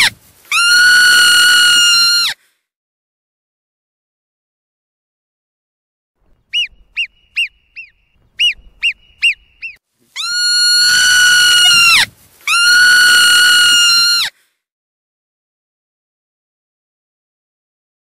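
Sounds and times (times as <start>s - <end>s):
marmot short sharp whistles: 6.5s - 10.5s
marmot long steady whistles: 6.5s - 14.3s.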